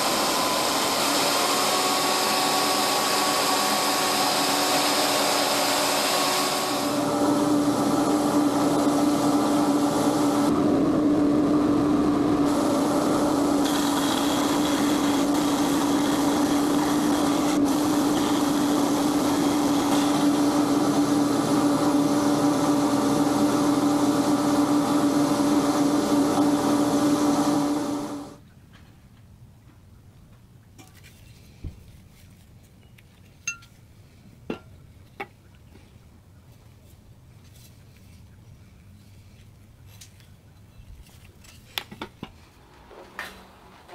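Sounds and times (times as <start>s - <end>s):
bandsaw and belt sander running: 0.0s - 28.4s.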